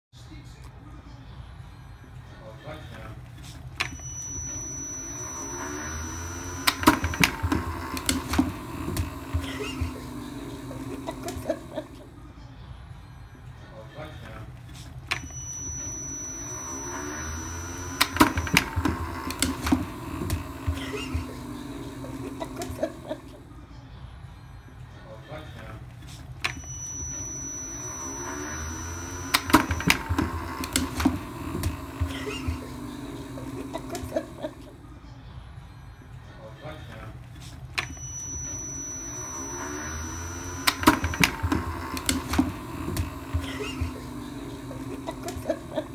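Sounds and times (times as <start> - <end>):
ball launcher whirring: 3.8 - 12.1, 15.1 - 23.4, 26.4 - 34.8, 37.7 - 45.9
thin high whine: 3.8 - 12.2, 15.1 - 23.4, 26.4 - 34.8, 37.8 - 45.9.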